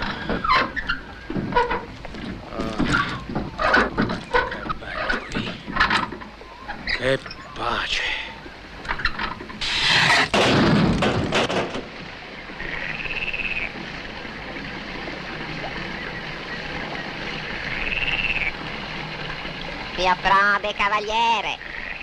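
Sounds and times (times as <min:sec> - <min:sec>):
frog croaking: 0:00.0 - 0:10.4, 0:12.4 - 0:13.9, 0:15.3 - 0:19.4, 0:20.0 - 0:22.0.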